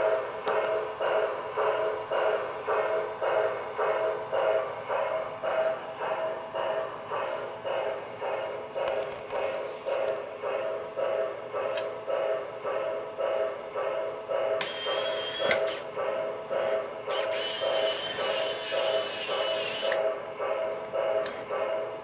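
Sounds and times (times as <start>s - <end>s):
toy train running: 0.0s - 22.0s.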